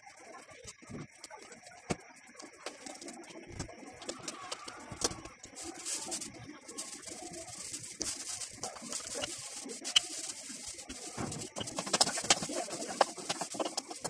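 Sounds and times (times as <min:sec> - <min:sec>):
hands patting dough: 0:08.0 - 0:14.0.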